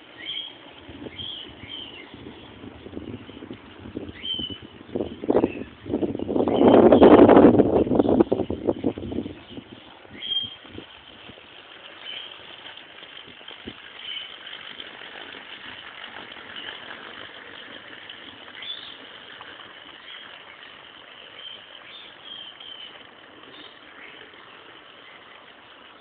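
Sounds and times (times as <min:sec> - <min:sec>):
bird chirps: 0:00.1 - 0:02.3, 0:04.1 - 0:07.2, 0:08.0 - 0:10.6.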